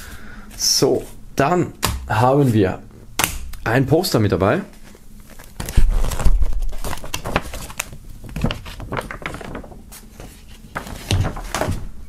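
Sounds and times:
paper rustling and crackling: 0:04.7 - 0:12.0.

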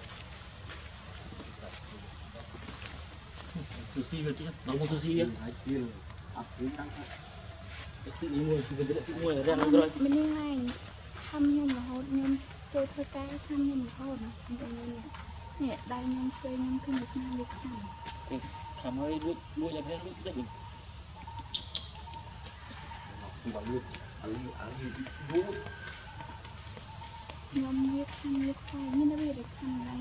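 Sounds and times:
high-pitched insect drone: 0:00.0 - 0:30.0
wavering calls: 0:07.2 - 0:30.0.

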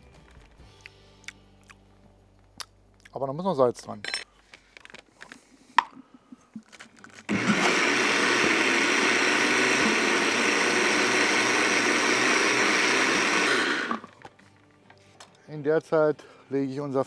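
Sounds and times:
blender running: 0:07.3 - 0:14.1.

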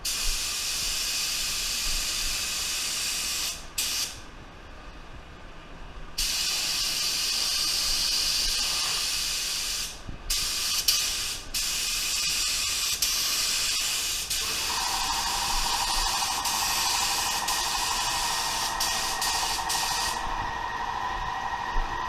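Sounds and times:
spray gun hissing: 0:06.2 - 0:22.0.

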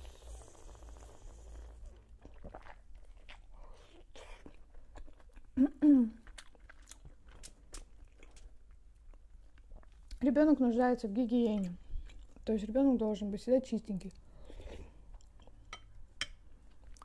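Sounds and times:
wet chewing: 0:00.6 - 0:10.2.

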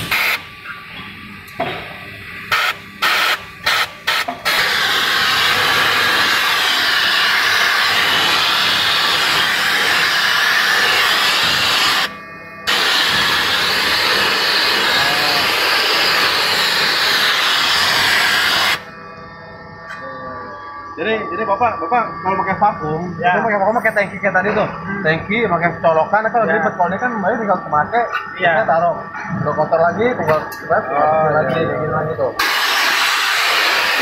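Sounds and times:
vacuum gun hissing: 0:02.5 - 0:18.9, 0:32.4 - 0:34.0.

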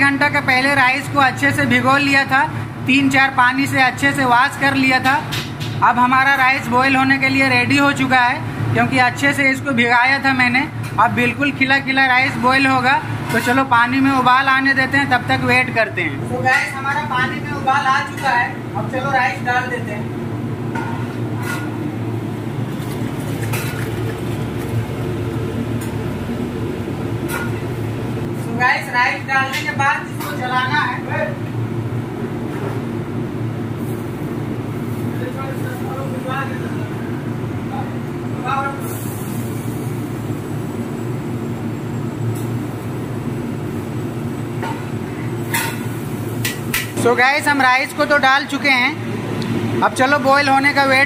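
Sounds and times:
gas range and hood rumble: 0:00.0 - 0:51.0.

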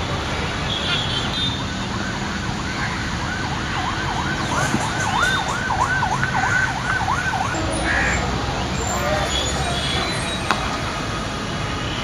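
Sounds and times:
siren yelping: 0:03.2 - 0:11.1.

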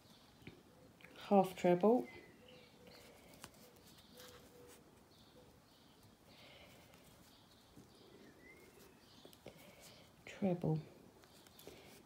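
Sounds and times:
yarn rustling: 0:02.9 - 0:05.3, 0:05.9 - 0:12.0.

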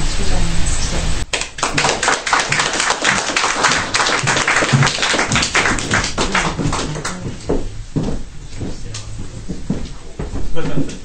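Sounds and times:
audience applauding: 0:01.3 - 0:07.6.

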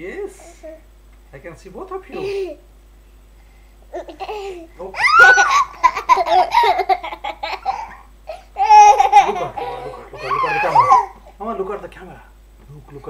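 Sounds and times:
children giggling: 0:04.0 - 0:11.2.

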